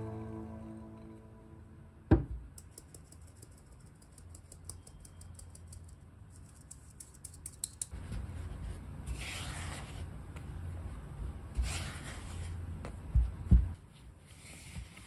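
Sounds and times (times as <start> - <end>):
spatula scraping and folding batter: 7.9 - 12.7, 14.1 - 15.0
flour sifted through a sieve: 7.9 - 12.8, 14.1 - 15.0.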